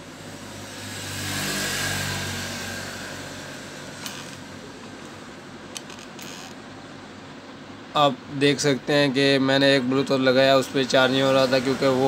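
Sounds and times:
vehicle engine passing by: 0.1 - 4.8, 11.0 - 12.0.

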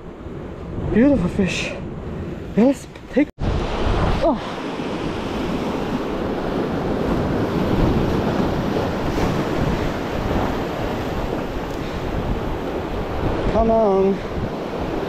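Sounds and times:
wind buffeting microphone: 0.0 - 15.0
surf washing over rocks: 3.4 - 15.0.

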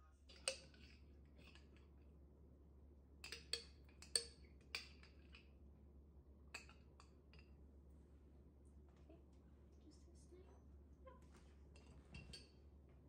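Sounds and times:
utensil clinking glass jar: 3.2 - 5.5.

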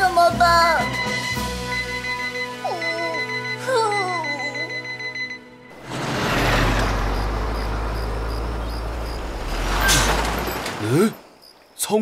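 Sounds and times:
cartoon electronic alarm ringing: 0.6 - 5.6.

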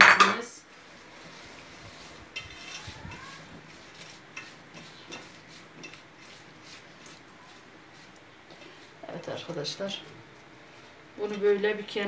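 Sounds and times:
potato pieces scraping a pan: 0.7 - 9.0.

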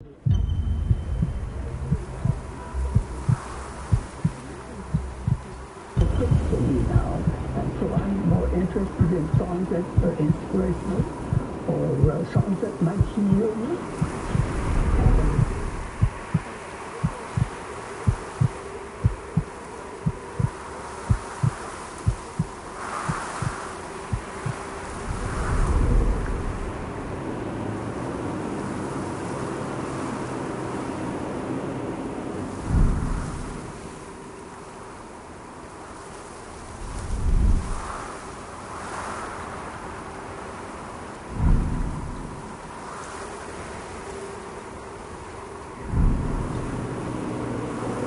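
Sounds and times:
steady low hum: 0.0 - 27.4, 32.6 - 33.8, 41.3 - 42.8, 45.5 - 48.0
faint drone: 0.0 - 39.6, 40.3 - 48.0
deep thumps in pairs: 0.2 - 10.4, 12.4 - 16.5.

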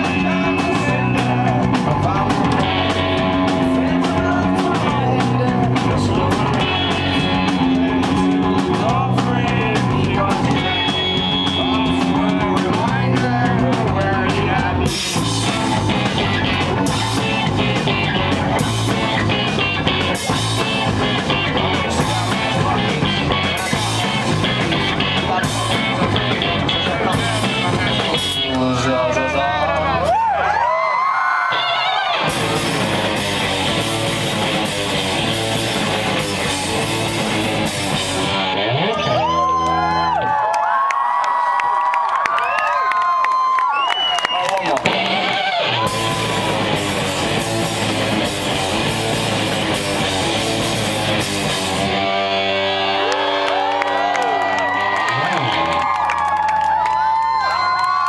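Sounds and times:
drum kit: 0.0 - 28.8, 32.1 - 40.0, 44.7 - 58.0
person singing: 0.0 - 28.8
distorted electric guitar: 0.0 - 30.4, 31.5 - 40.4, 44.7 - 57.1.

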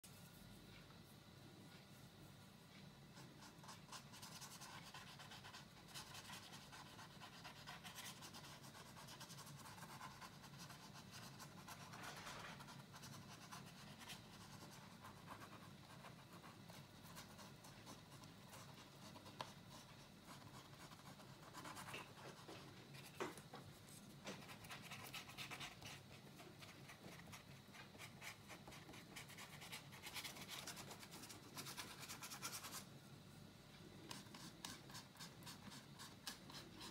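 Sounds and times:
paintbrush scratching on board: 3.1 - 23.2.

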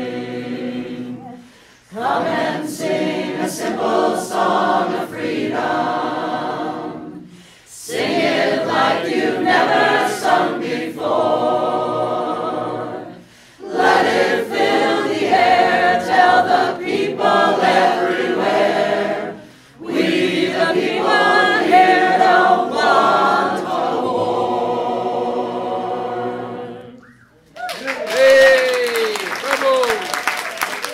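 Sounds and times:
choir singing a cappella: 0.0 - 27.2.

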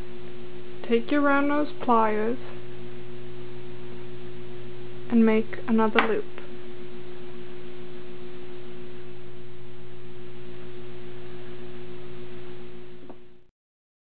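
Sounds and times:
electrical hum: 0.0 - 13.5.

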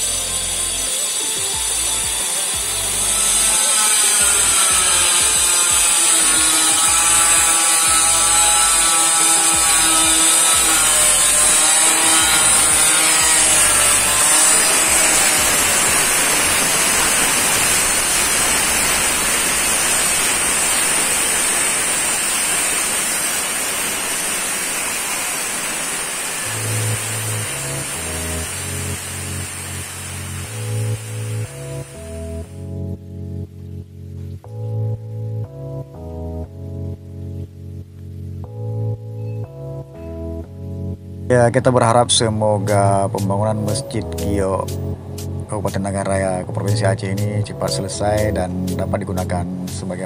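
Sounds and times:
stone cutter grinding: 0.0 - 32.5.

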